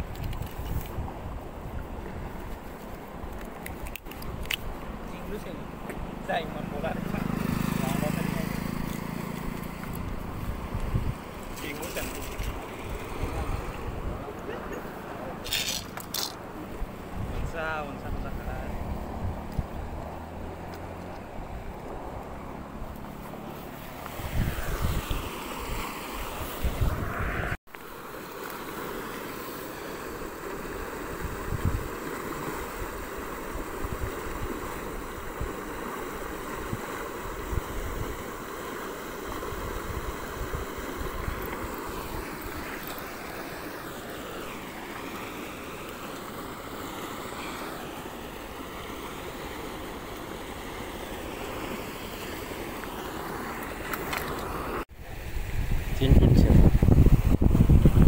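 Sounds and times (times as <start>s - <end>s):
wind buffeting microphone: 0.0s - 3.4s, 8.5s - 14.7s, 16.4s - 23.0s, 24.1s - 27.6s, 31.1s - 32.0s, 55.1s - 58.0s
water rushing: 0.0s - 58.0s
wind rushing: 24.0s - 27.6s, 55.2s - 58.0s.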